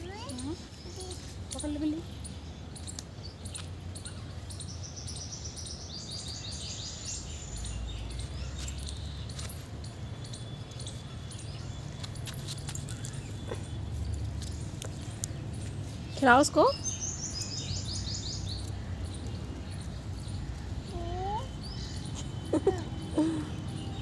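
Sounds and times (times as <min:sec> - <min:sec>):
birds chirping: 0:00.0 - 0:24.0.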